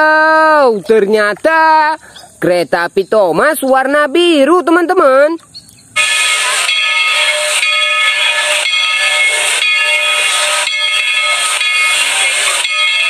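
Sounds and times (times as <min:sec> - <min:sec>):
steam hissing with ringing tone: 0:05.8 - 0:13.0.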